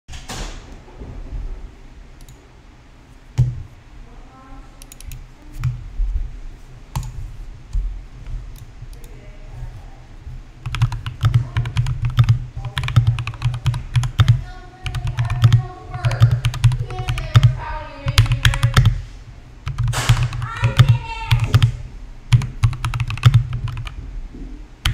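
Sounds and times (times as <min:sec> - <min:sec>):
mechanical keyboard typing: 0:10.6 - 0:19.0, 0:19.6 - 0:24.0.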